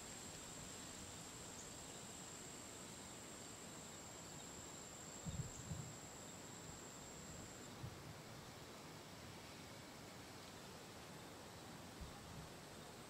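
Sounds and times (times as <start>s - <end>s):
high-pitched insect trill: 0.0s - 7.8s.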